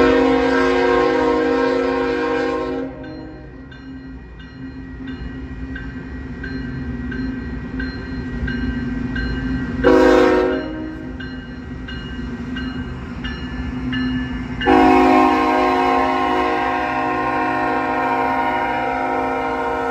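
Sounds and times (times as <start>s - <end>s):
train air horn blast: 0.0s - 3.0s, 9.8s - 11.0s, 14.6s - 19.9s
diesel locomotives rumbling: 0.0s - 19.9s
crossing bell dinging: 2.0s - 19.9s.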